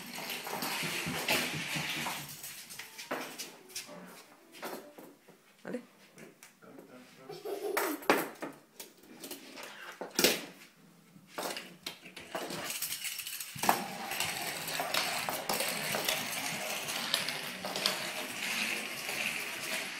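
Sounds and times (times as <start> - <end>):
plastic toy rattling on wooden floor: 0.0 - 3.3, 11.4 - 19.9.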